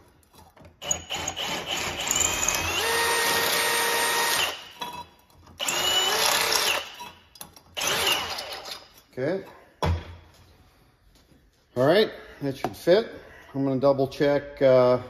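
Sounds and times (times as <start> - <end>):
cordless drill whine: 0.8 - 4.6, 5.6 - 6.9.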